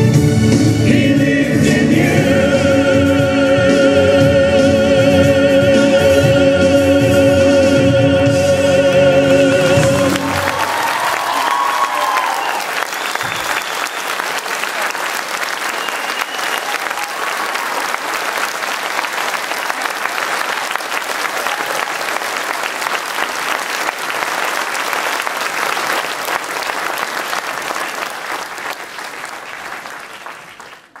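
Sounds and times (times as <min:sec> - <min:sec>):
audience applauding: 0:09.2 - 0:31.0.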